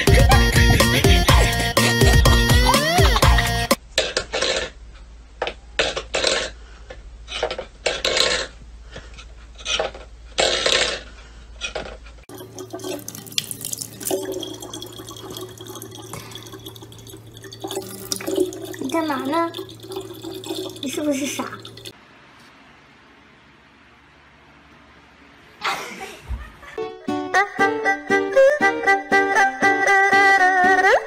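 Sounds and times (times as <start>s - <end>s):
water running into plastic jug: 12.3s - 21.9s.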